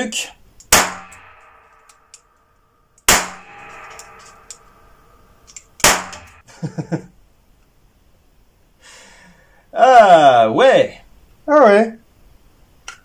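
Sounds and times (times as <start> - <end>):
pistol shots with echo: 0.7 - 1.9, 3.1 - 4.8, 5.8 - 6.4.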